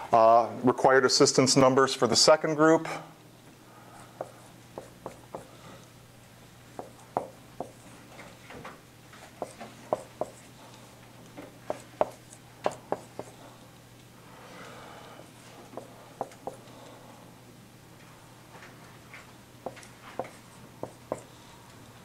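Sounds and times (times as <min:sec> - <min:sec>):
marker rubbing on whiteboard: 0:04.0 - 0:05.5, 0:06.8 - 0:08.0, 0:09.3 - 0:10.5, 0:11.6 - 0:13.4, 0:15.8 - 0:16.6, 0:19.7 - 0:21.3
marker tapping on whiteboard: 0:04.2 - 0:05.5, 0:06.7 - 0:07.9, 0:09.4 - 0:10.4, 0:11.4 - 0:13.4, 0:15.7 - 0:16.6, 0:19.6 - 0:21.3.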